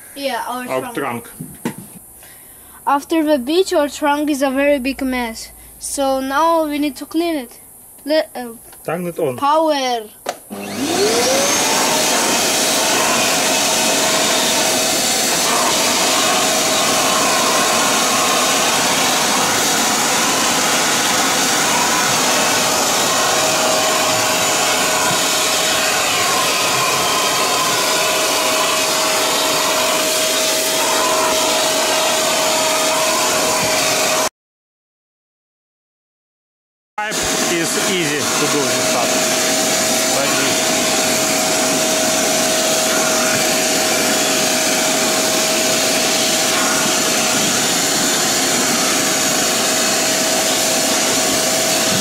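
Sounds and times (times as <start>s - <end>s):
vacuum cleaner whine: 0.0s - 2.5s, 10.3s - 34.3s, 37.0s - 52.0s
vacuum sucking sand: 10.5s - 34.3s, 37.0s - 52.0s.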